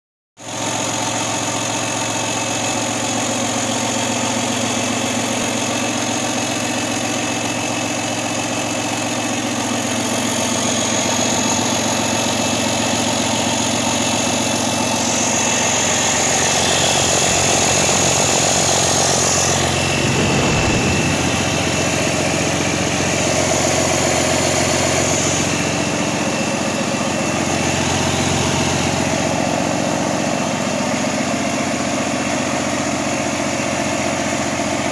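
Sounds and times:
diesel engine idling: 0.8 - 34.8.

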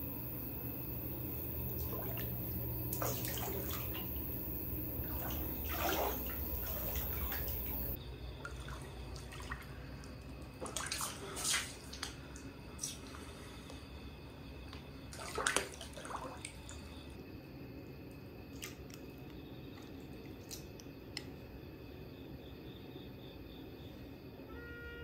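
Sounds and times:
water splashing: 0.0 - 12.2, 15.1 - 16.9
water running in bathtub: 0.0 - 13.3, 15.0 - 17.1.

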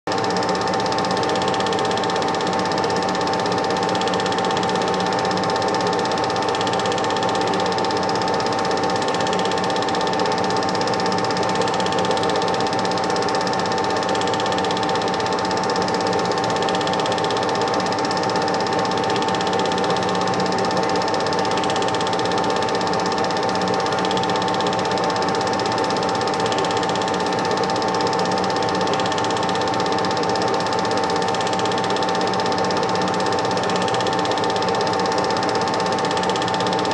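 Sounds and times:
film projector whirring: 0.1 - 36.9.

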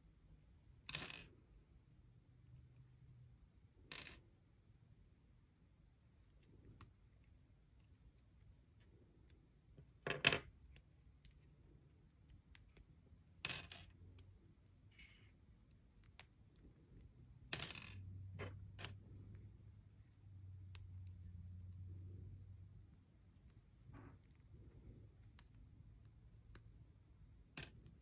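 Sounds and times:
plastic bricks clacking on a table: 0.9 - 1.3, 3.9 - 4.2, 13.4 - 14.0, 17.5 - 19.0, 27.5 - 28.0.

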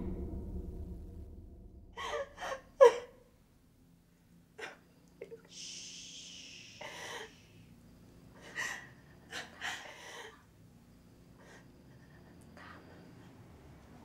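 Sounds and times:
person shushing: 5.2 - 7.6.

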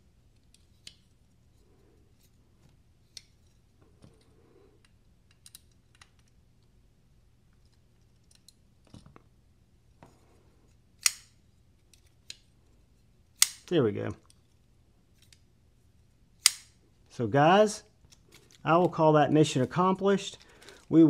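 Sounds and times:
folding knife metallic clicks: 11.0 - 11.4, 16.4 - 16.7.

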